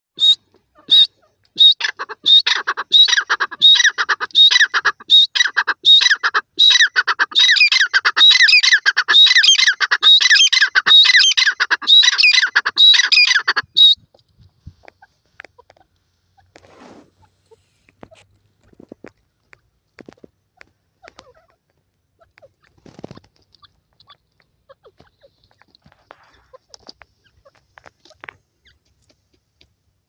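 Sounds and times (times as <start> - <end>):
francolin squawking calls: 0.2 - 14.0.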